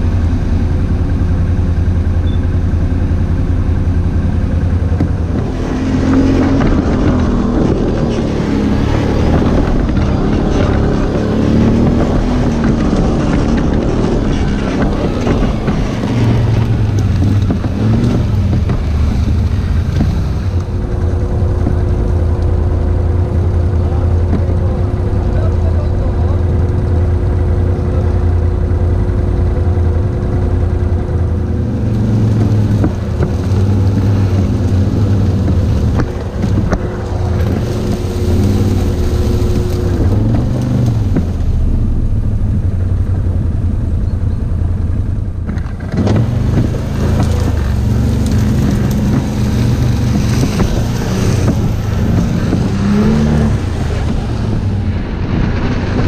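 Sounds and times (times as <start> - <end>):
quad bike engines revving: 0.0 - 56.0.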